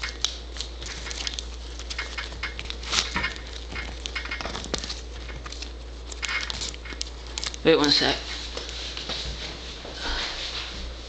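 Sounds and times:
plastic card holder ticks and scrapes: 0.0 - 7.6
paper envelope rustling: 0.0 - 8.2.

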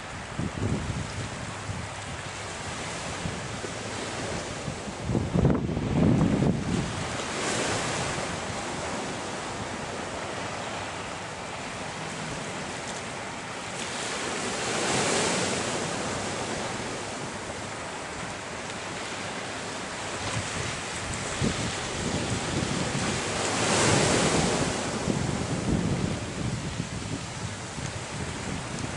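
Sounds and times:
wind on microphone: 0.0 - 10.8, 19.9 - 28.9
small waves on water: 0.0 - 28.9.

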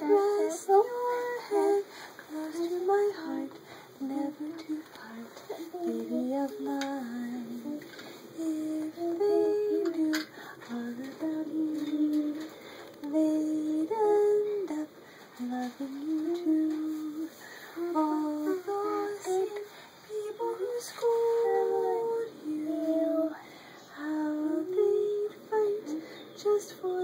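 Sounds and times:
person singing slow tune: 0.0 - 27.0.

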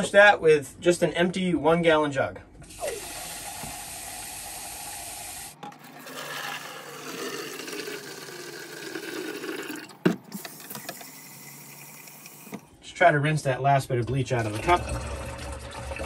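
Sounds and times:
liquid pouring into plastic jug: 2.8 - 11.0, 14.4 - 16.0
tap water running into sink: 5.6 - 12.6.

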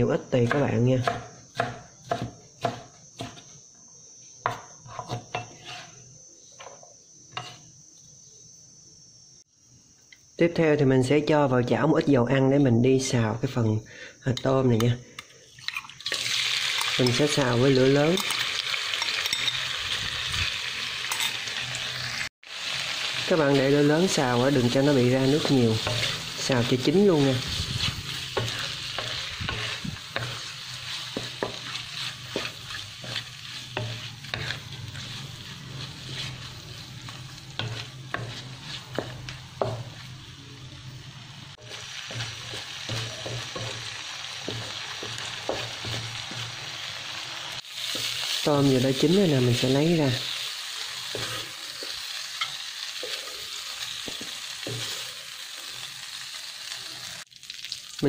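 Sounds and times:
wooden spatula scraping pan: 4.9 - 6.0, 25.4 - 40.2, 51.1 - 55.1
shrimp sizzling in hot oil: 15.5 - 58.0.

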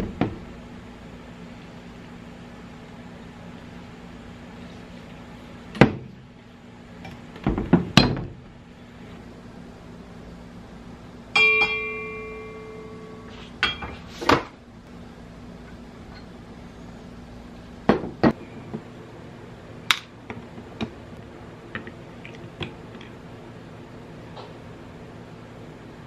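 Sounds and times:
ringing metallic clank: 11.4 - 13.9.

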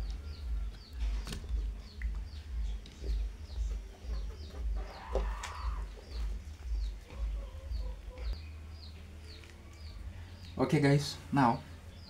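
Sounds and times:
birds chirping: 0.0 - 12.0
low clucking calls: 2.1 - 8.4.

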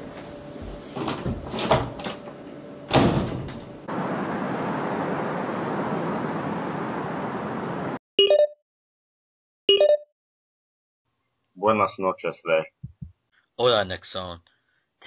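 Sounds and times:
door shutting: 1.0 - 3.8
city noise hiss: 3.8 - 8.0
distant traffic: 3.8 - 8.0.

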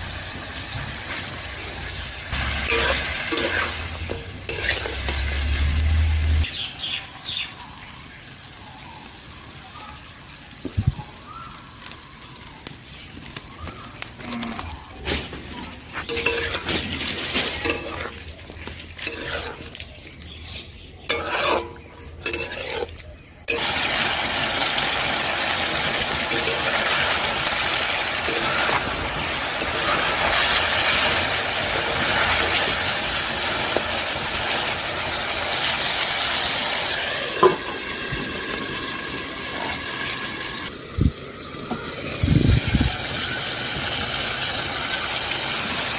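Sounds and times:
meat sizzling: 0.0 - 45.9
spoon stirring and scraping pan: 2.3 - 5.4, 15.1 - 23.7, 26.2 - 33.2.

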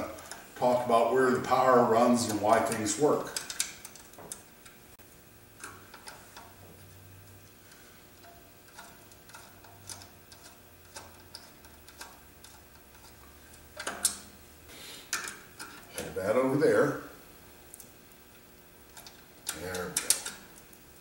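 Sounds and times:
screwdriver and metal parts clicking: 2.1 - 4.8.

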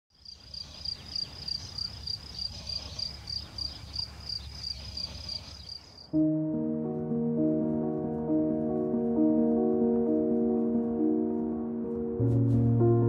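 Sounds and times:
cricket chirping: 0.1 - 6.2.

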